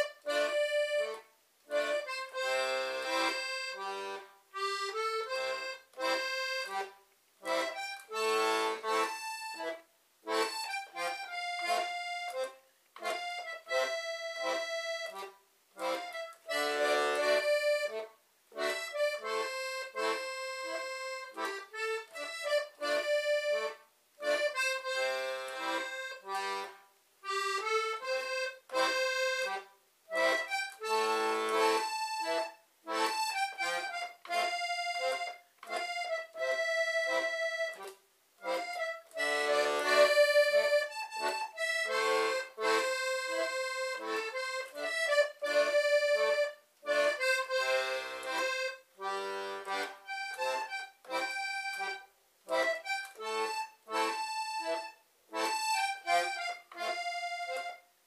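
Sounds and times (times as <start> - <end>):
button accordion playing a tune: 0.0 - 58.0.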